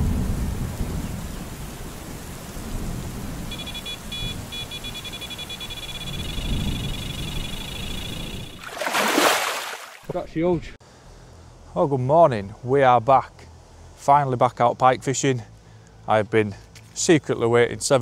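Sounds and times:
electronic bite alarm bleeps: 0:03.5 - 0:08.6.

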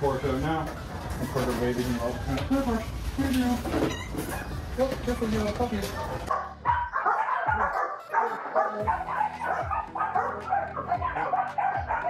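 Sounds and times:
dogs barking and yipping: 0:00.0 - 0:02.8, 0:03.8 - 0:12.0
music with deep falling bass beat: 0:04.3 - 0:07.8, 0:08.8 - 0:12.0.

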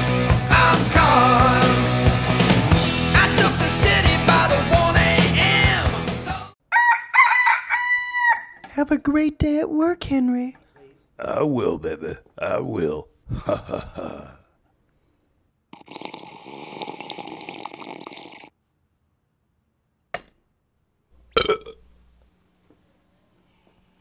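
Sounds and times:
long burp: 0:21.3 - 0:21.8.

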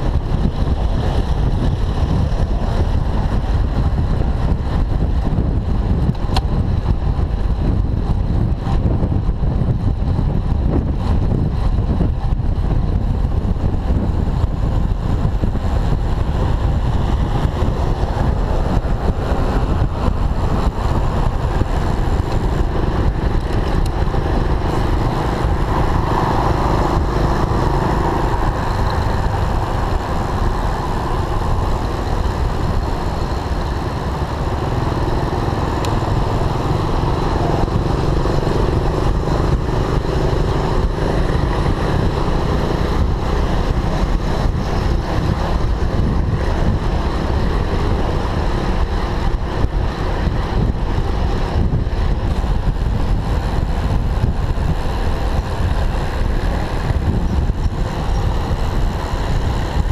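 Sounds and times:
scooter engines running: 0:00.0 - 0:59.9
wind noise on microphone: 0:00.0 - 0:59.9.

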